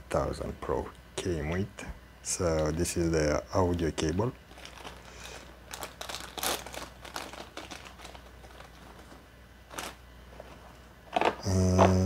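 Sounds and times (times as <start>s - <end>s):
plastic bag crinkling: 4.4s - 11.4s.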